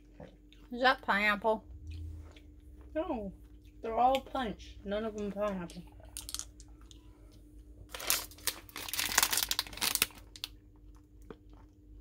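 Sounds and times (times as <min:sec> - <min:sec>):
plastic candy bag crinkling: 0:06.2 - 0:06.7, 0:07.8 - 0:11.7.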